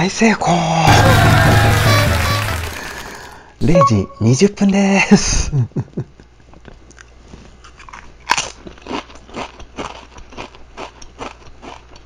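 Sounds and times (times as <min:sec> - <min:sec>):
chips crunching while chewed: 0:00.9 - 0:03.3, 0:06.9 - 0:12.0.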